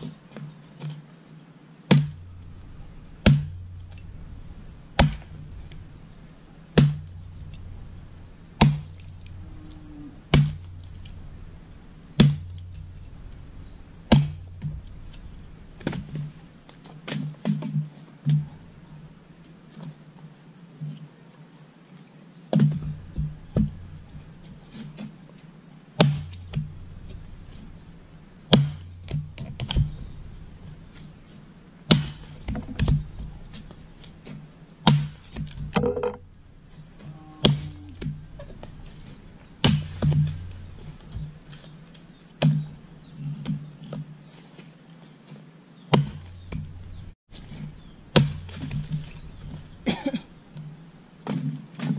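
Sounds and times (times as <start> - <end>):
axe chopping wood: 1.9 - 4.3, 5.0 - 5.9, 6.7 - 7.8, 8.6 - 9.4, 10.3 - 11.5, 12.1 - 13.2, 14.1 - 15.2, 15.8 - 16.4, 22.5 - 24.0, 26.0 - 27.6, 28.5 - 30.2, 31.9 - 36.2, 37.4 - 39.0, 39.6 - 41.7, 42.4 - 42.8, 45.9 - 50.0.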